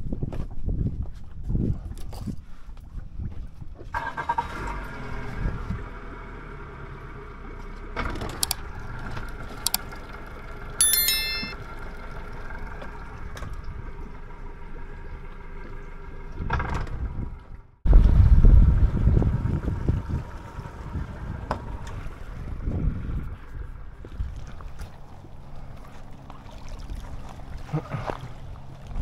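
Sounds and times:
short bell-like ding: 0:10.8 - 0:11.6.

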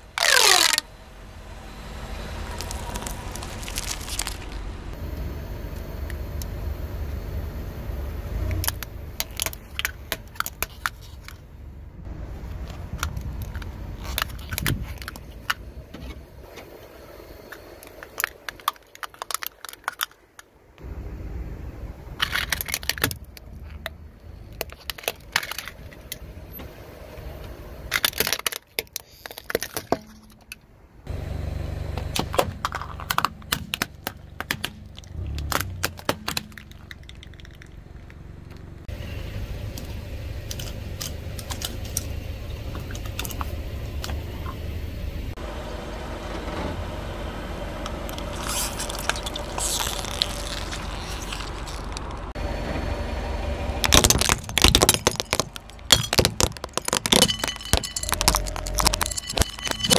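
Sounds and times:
tyre crushing crunchy objects: 0:00.0 - 0:00.8, 0:02.5 - 0:04.7, 0:48.1 - 0:52.4, 0:53.8 - 0:59.9
car engine humming: 0:00.0 - 0:19.7, 0:20.6 - 0:28.4, 0:30.3 - 0:59.9.

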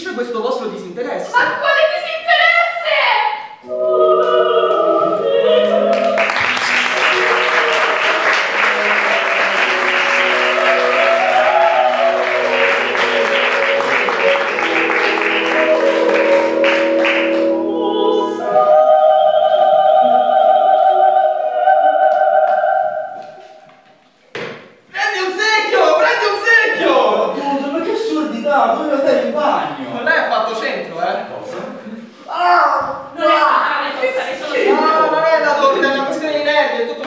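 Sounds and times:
operatic choir singing: 0:03.6 - 0:23.7
audience applause: 0:05.9 - 0:17.5.

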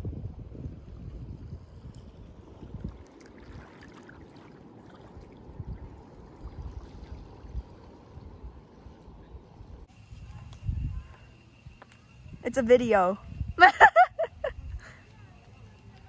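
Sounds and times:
wind rumbling on microphone: 0:00.0 - 0:16.0
small waves lapping on shore: 0:02.4 - 0:09.5.

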